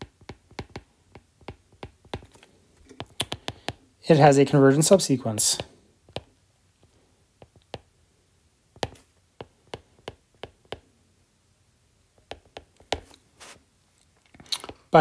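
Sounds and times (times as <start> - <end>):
stylus clicking on a tablet: 0.0 - 3.8, 5.6 - 6.3, 7.4 - 7.9, 8.8 - 10.8, 12.2 - 13.2.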